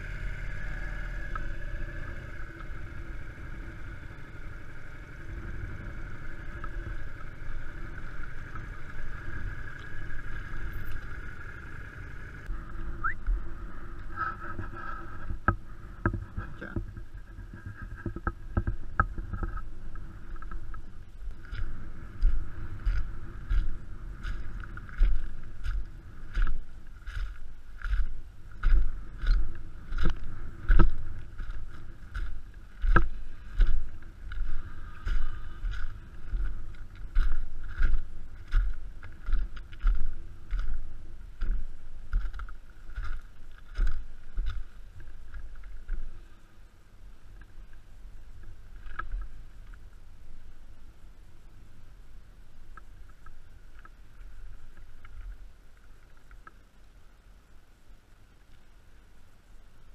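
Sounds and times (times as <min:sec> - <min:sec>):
motorcycle engine running: 0:00.0 - 0:46.3
footsteps on gravel: 0:19.6 - 0:46.2.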